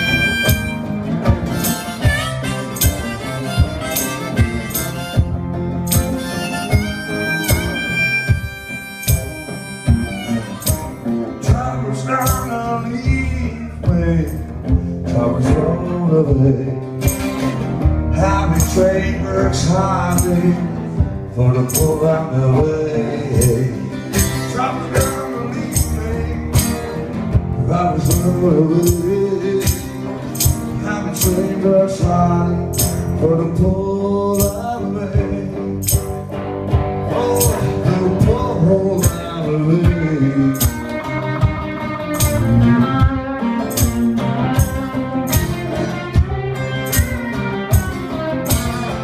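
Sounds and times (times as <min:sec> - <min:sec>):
harmonica solo: 0:00.0 - 0:11.4
sharp percussive hits: 0:00.0 - 0:11.6, 0:35.8 - 0:39.4, 0:40.5 - 0:49.0
strummed acoustic guitar: 0:00.0 - 0:49.0.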